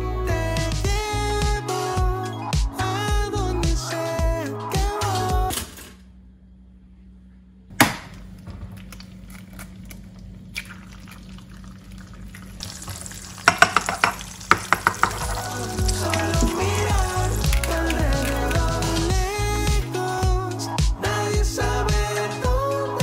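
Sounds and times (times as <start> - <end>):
eggs sizzling in oil: 10.6 - 18.6
hot fat popping and crackling: 12.6 - 19.1.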